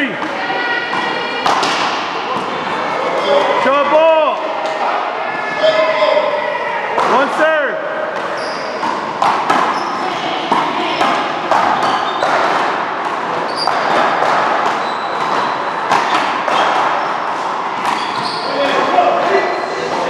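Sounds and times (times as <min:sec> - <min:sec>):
rubber ball hits echoing: 0:00.1 - 0:02.6, 0:08.0 - 0:20.0
shoe squeaks: 0:08.2 - 0:12.6, 0:13.4 - 0:20.0.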